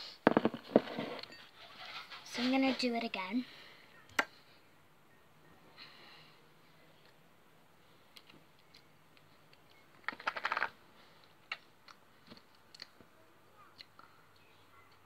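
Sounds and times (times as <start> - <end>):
plastic packet crinkling: 10.1 - 10.7.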